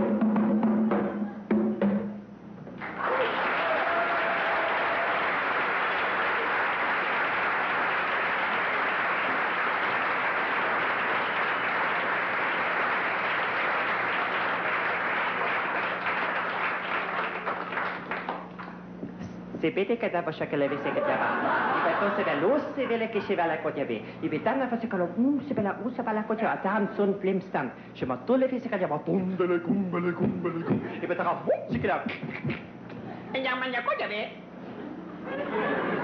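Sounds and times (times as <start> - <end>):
audience applauding: 2.8 - 18.8, 20.6 - 22.4.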